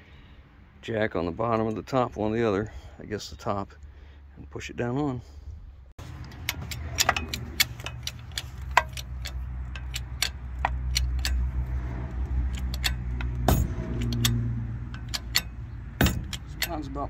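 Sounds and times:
bottle jack metallic clicks: 6.2 - 11.6, 12.5 - 17.0.

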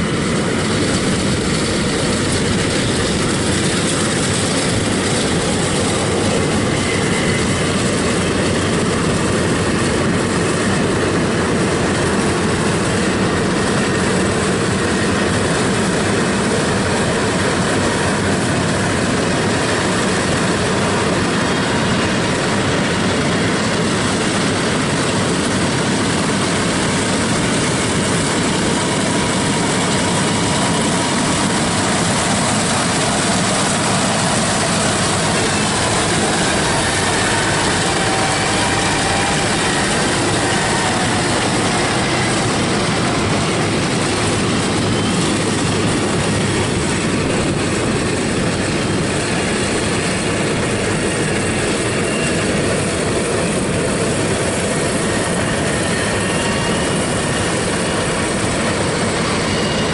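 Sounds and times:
combine harvester running: 0.0 - 59.9.

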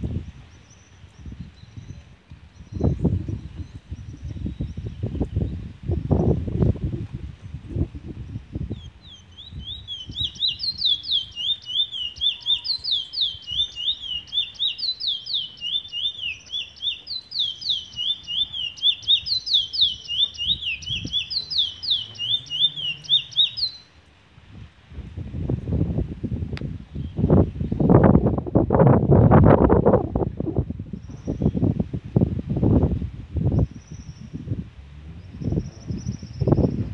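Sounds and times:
low wind rumble: 0.0 - 36.9
finch singing high notes: 9.6 - 23.9.

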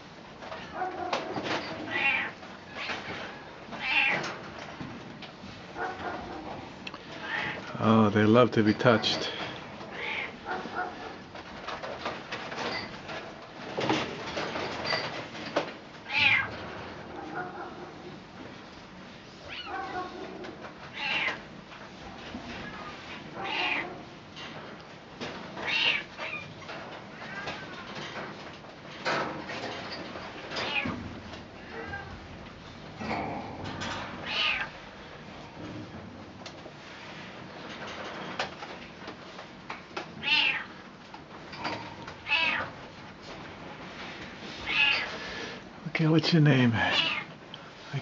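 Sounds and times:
cat meowing: 1.8 - 2.4, 3.8 - 4.2, 7.2 - 7.6, 9.9 - 10.4, 16.1 - 16.5, 20.9 - 21.4, 23.4 - 24.0, 25.6 - 26.4, 30.6 - 30.9, 31.7 - 32.1, 34.2 - 34.7, 40.2 - 40.7, 42.2 - 42.7, 44.7 - 45.1, 46.9 - 47.3.

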